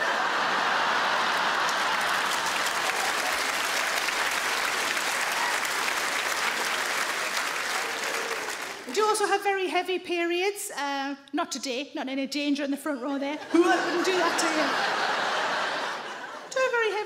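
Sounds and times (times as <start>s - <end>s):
audience applause: 0.0s - 9.0s, 13.6s - 16.5s.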